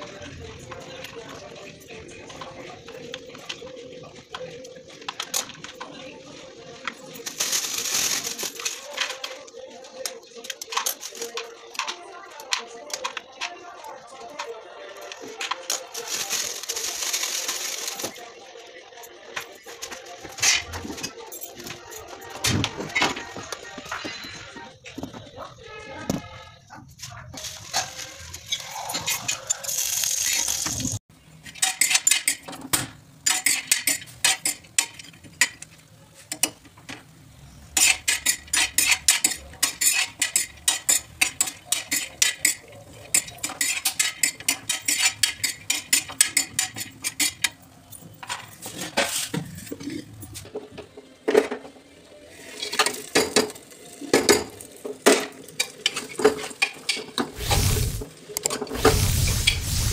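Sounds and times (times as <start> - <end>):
spoon scraping on iron griddle: 31.4 - 32.5, 33.2 - 36.7, 37.5 - 47.6
spoon scraping in metal pot: 37.8 - 47.5
hiss: 57.4 - 58.1, 58.8 - 59.9.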